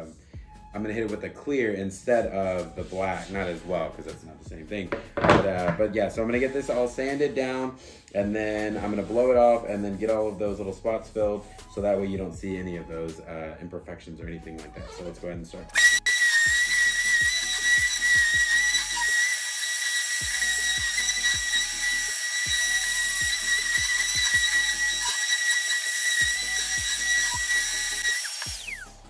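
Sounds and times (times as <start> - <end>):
orbital sander whining: 15.7 - 29.0.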